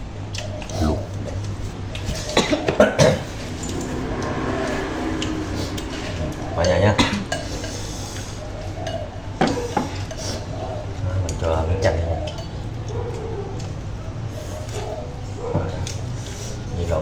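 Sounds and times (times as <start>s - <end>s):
chopsticks and spoons clinking on bowls: 11.2s - 13.8s.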